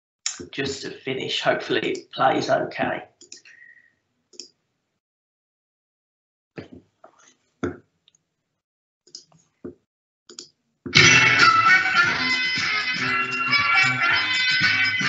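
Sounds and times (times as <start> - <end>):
music: 10.9 - 15.0.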